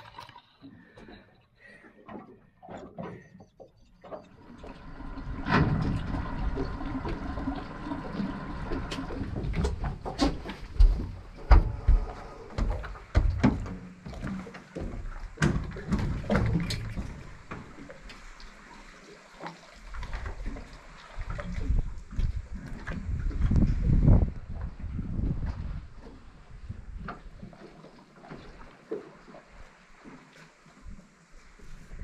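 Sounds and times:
water splashing and sloshing: 0.0 - 32.0
knocks and low thumps: 9.2 - 17.5.

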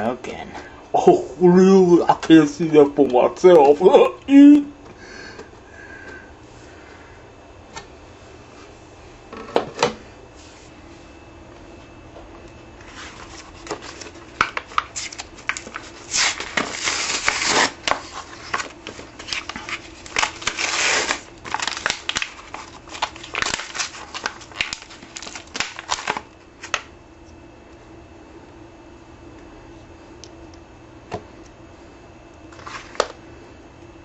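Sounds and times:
blister pack being torn open: 13.6 - 26.9.

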